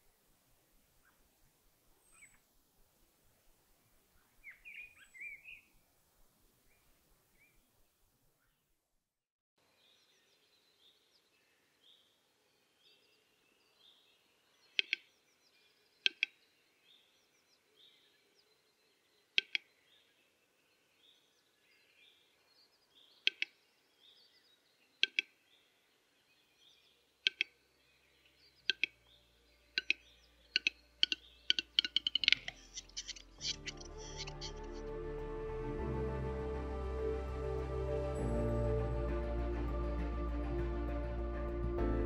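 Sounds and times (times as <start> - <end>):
small bird chirping: 4.2 - 5.7, 12.8 - 34.7.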